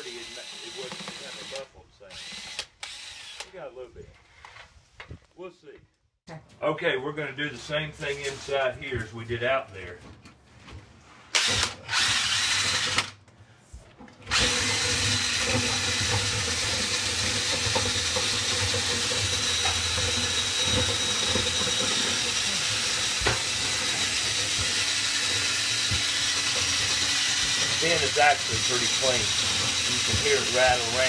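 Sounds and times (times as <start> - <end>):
cordless drill spinning: 0.0 - 3.5, 11.3 - 13.2, 14.2 - 31.0.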